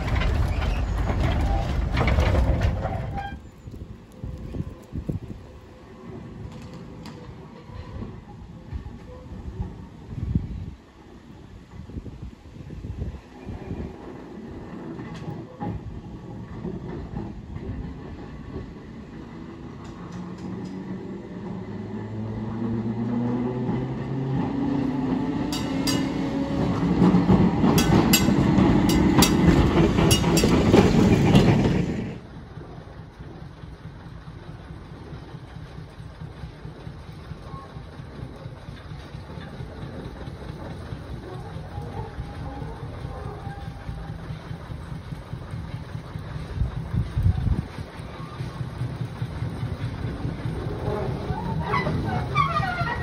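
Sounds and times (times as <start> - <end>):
wheels clacking over rail joints: 0.0 - 10.2, 10.8 - 53.0
tram motor whine: 13.0 - 53.0.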